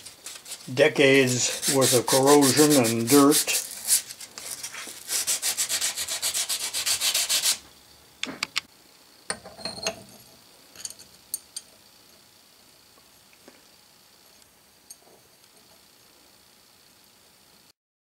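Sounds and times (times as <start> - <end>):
abrasive paper scrubbing metal: 0.0 - 7.6.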